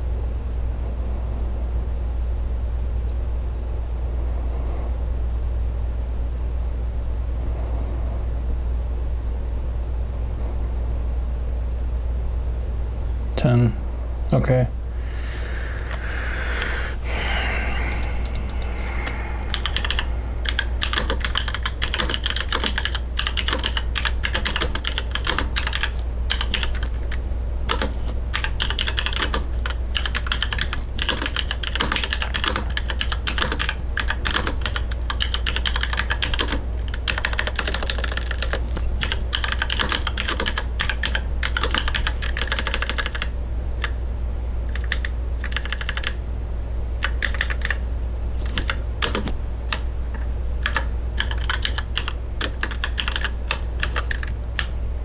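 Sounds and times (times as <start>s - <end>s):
steady low hum: 0.0s - 55.0s
fast typing on keyboard: 17.9s - 44.0s, 44.7s - 46.2s, 47.0s - 47.8s, 48.4s - 54.7s.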